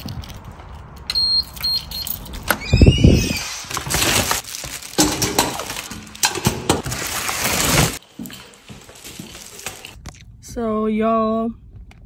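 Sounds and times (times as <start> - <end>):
falling squeak: 2.5 - 4.2
rustling: 3.6 - 10.0.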